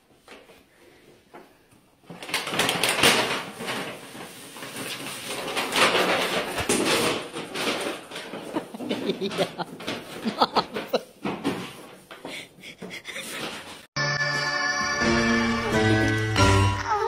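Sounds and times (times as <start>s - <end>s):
paper bag rustling and crinkling: 2.1s - 12.1s
bag scraping on floor: 3.2s - 10.3s.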